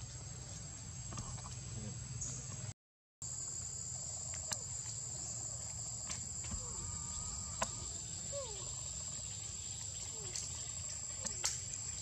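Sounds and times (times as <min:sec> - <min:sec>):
high-pitched insect drone: 0:03.3 - 0:12.0.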